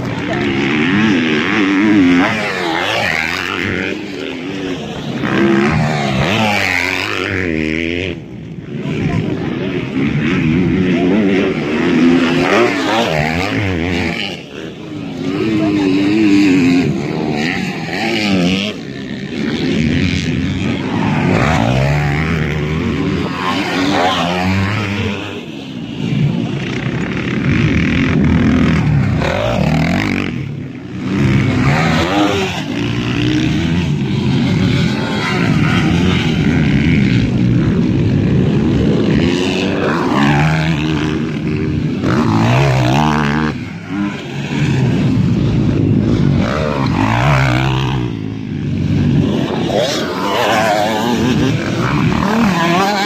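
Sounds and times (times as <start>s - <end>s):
dirt bike engines revving: 0.0s - 53.0s.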